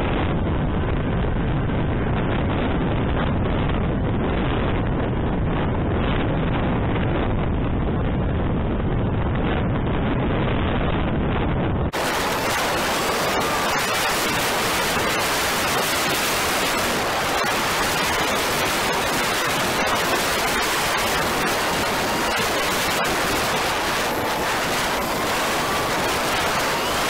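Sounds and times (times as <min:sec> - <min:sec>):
wind buffeting microphone: 0:00.0 - 0:27.0
faint rising and falling tone: 0:12.0 - 0:27.0.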